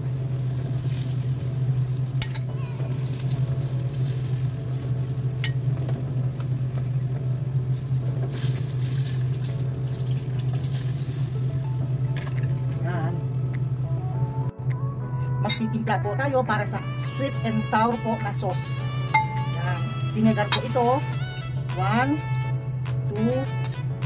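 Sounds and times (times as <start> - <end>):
food sizzling in hot oil: 0.0 - 12.7
steady low hum: 0.0 - 24.0.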